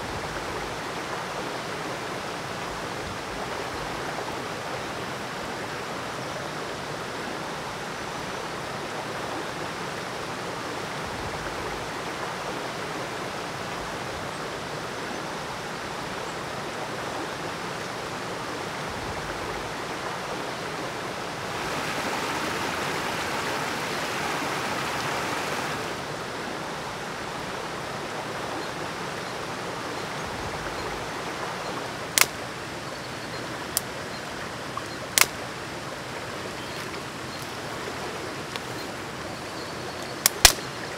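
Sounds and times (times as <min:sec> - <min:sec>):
river rushing over rocks: 0:00.0 - 0:39.5
dry twigs snapping: 0:32.2 - 0:32.4, 0:35.2 - 0:35.4, 0:40.2 - 0:40.6.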